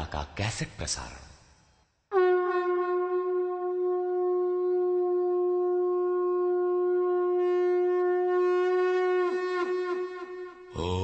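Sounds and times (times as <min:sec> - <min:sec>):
conch shell blown: 0:02.1 - 0:10.9.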